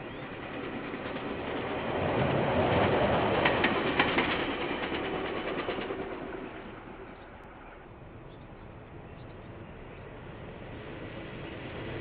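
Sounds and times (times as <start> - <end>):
wheels clicking over rail joints: 0.0 - 7.5
diesel locomotive passing: 0.0 - 12.0.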